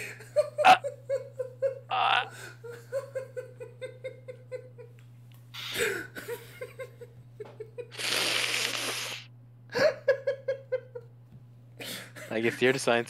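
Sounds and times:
laughter: 0:00.0 - 0:05.0, 0:05.7 - 0:08.0, 0:09.7 - 0:11.2, 0:11.8 - 0:13.0
loud hissing noise: 0:07.9 - 0:09.3.

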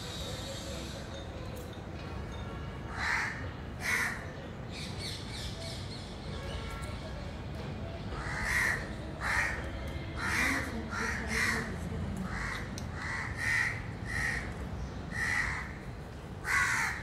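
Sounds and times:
crows cawing: 0:02.9 - 0:04.2, 0:08.2 - 0:09.6, 0:10.2 - 0:15.8, 0:16.4 - 0:17.0.

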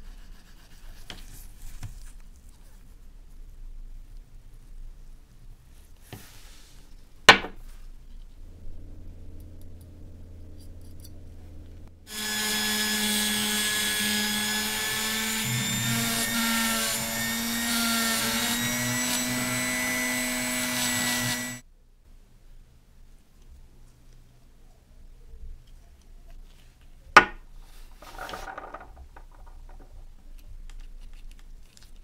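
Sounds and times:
rotary tool grinding brass: 0:12.1 - 0:21.6.

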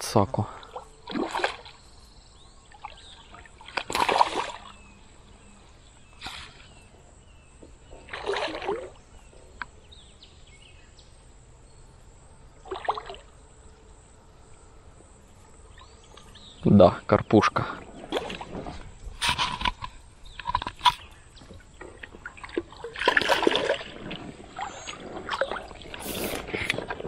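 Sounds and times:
fish splashing at water surface: 0:02.8 - 0:04.8, 0:08.0 - 0:09.0, 0:22.1 - 0:27.0.

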